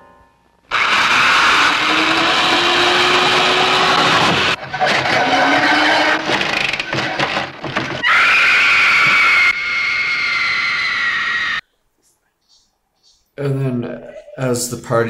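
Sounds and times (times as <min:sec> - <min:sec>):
high-pitched shriek: 0:00.7 - 0:06.8, 0:08.0 - 0:11.6
power drill whining: 0:00.7 - 0:07.4.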